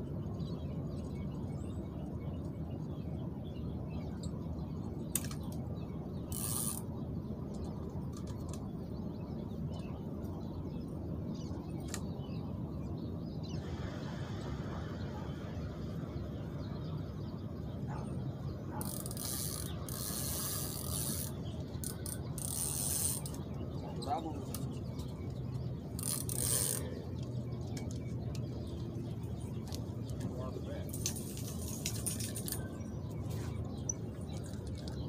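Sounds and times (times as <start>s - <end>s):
fishing reel gears ratcheting: 6.3s - 6.8s, 18.8s - 23.4s, 26.0s - 26.8s
steady low rumble: 6.9s - 18.8s.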